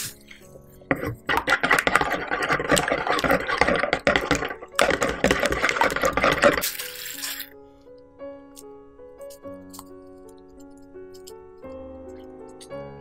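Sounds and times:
wire whisk scraping a plastic bowl: 0.0 - 7.4.

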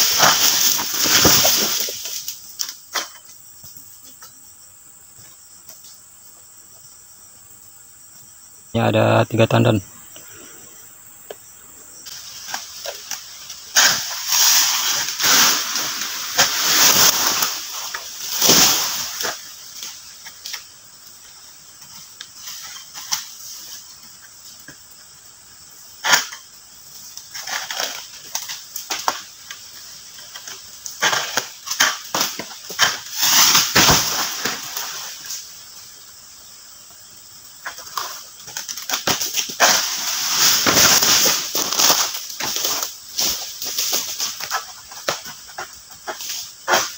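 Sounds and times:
palm fronds rustling: 0.0 - 3.8, 12.0 - 24.6, 26.0 - 46.9.

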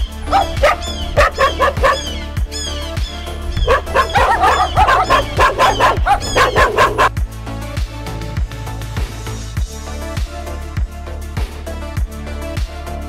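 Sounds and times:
dog barking and yipping: 0.0 - 7.1
music with bass beat: 0.0 - 13.0.

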